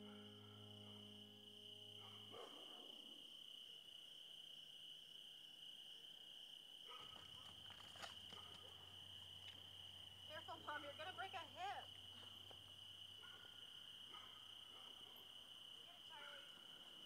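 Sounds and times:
held musical chord: 0.0 - 2.4
crickets chirring: 0.0 - 17.0.

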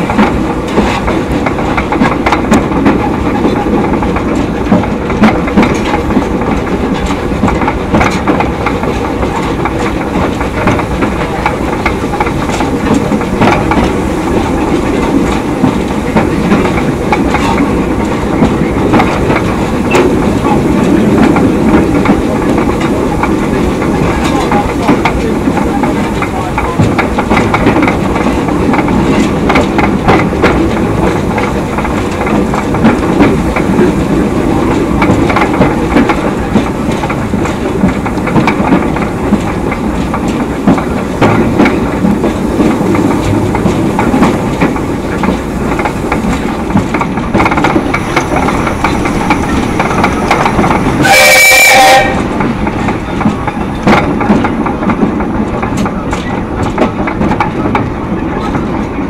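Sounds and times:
train wheels clacking on rail joints: 0.0 - 59.0
steam locomotive whistle blast: 51.0 - 52.3.

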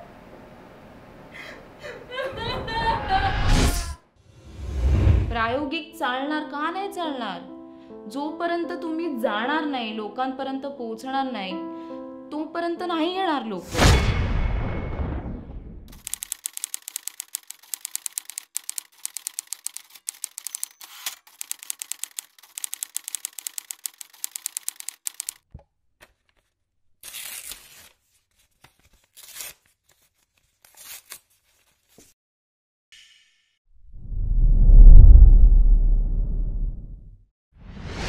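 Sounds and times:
rapid sharp clicking: 15.9 - 25.4.

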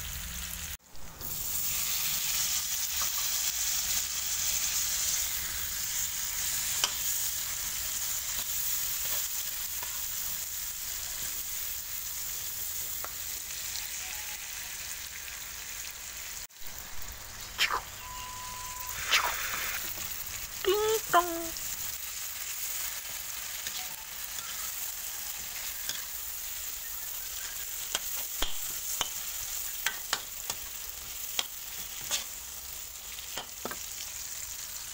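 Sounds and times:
food sizzling in hot oil: 0.0 - 34.9
metal spatula tapping a pan: 29.8 - 30.6.

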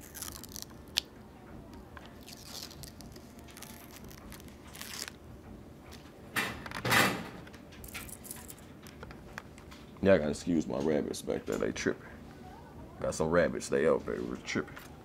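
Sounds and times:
plastic film peeling and crinkling: 0.0 - 1.1, 2.0 - 5.2.

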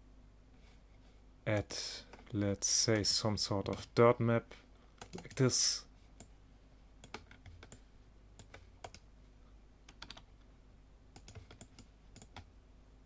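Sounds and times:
low electrical hum: 0.0 - 13.0
keyboard and mouse clicks: 5.0 - 5.4, 7.0 - 7.8, 8.4 - 9.0, 9.9 - 10.3, 11.2 - 12.5.

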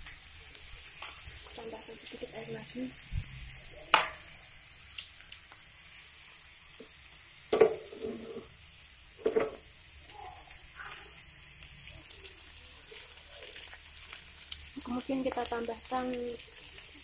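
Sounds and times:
food sizzling in a frying pan: 0.0 - 17.0
spatula scraping a pan: 7.6 - 8.6.

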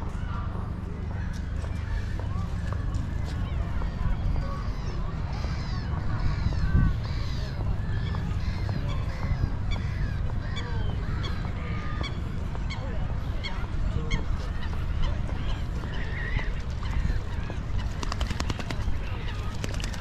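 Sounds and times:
steady low rumble: 0.0 - 20.0
flock of birds calling: 4.2 - 20.0.

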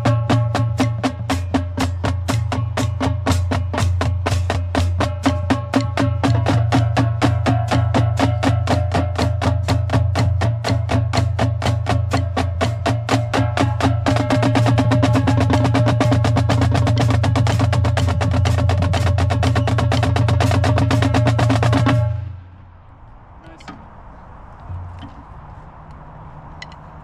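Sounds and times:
marching drumline playing: 0.0 - 22.4
faint clicks: 26.6 - 26.9.

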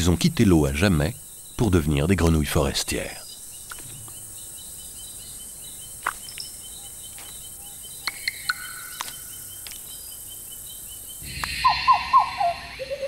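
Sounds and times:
insect trill: 0.0 - 13.0
pulsing chirp: 3.1 - 13.0
falling whistled calls: 6.2 - 10.2, 11.2 - 13.0.

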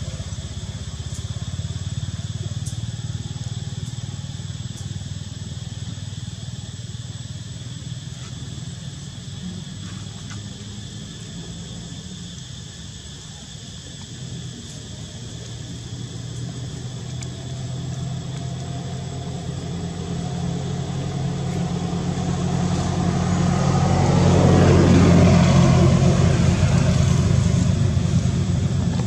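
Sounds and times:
vehicle engine passing: 15.8 - 29.0.

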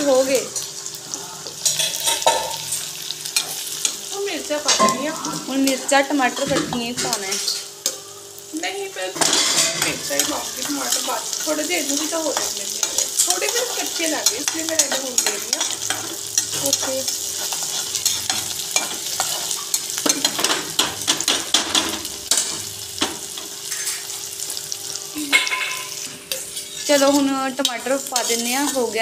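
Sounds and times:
onions sizzling in hot oil: 0.0 - 29.0
metal spatula scraping pan: 9.2 - 20.9, 23.6 - 24.2.

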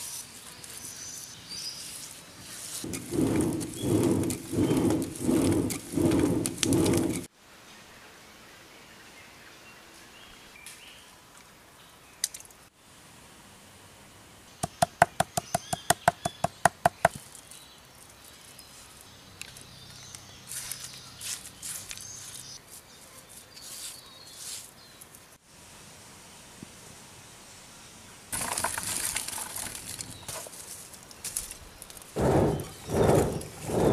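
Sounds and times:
scraping and grinding on stone: 1.8 - 7.3, 28.4 - 30.5, 32.2 - 33.9.

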